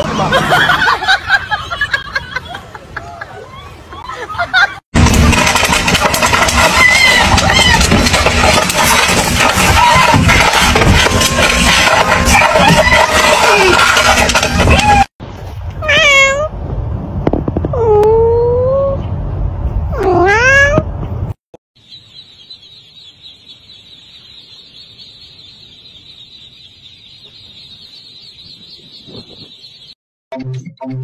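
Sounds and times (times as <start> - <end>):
low background rumble: 5.0 - 21.4
cat meowing: 15.8 - 16.5, 20.0 - 20.9
ducklings peeping: 21.8 - 30.0.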